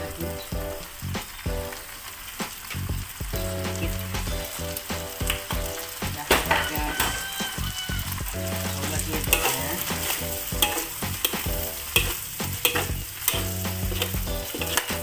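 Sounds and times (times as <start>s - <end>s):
food sizzling in a wok: 0.0s - 15.0s
metal spatula scraping pan: 8.5s - 15.0s.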